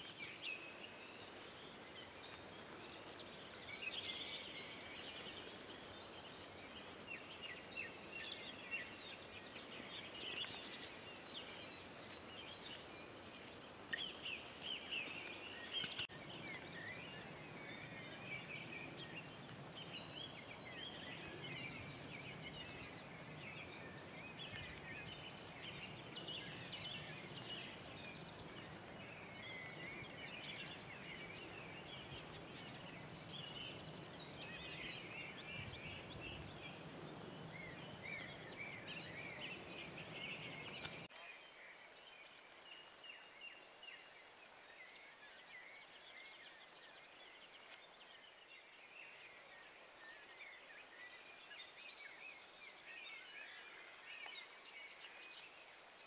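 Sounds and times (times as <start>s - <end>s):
birds chirping: 0.0s - 41.2s.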